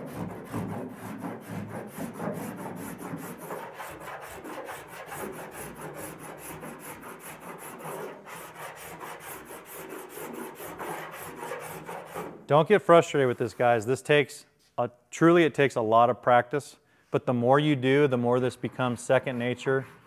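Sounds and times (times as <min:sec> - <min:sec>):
file rasping across filler: 0:00.0 - 0:12.4, 0:18.2 - 0:20.0.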